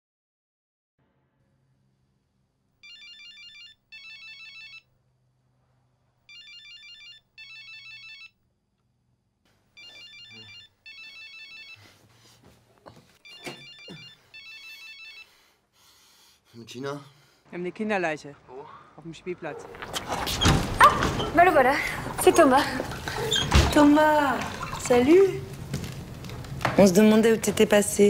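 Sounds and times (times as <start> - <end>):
mobile phone ringing: 2.8 - 4.9, 6.3 - 8.4, 9.8 - 11.9, 13.2 - 15.4.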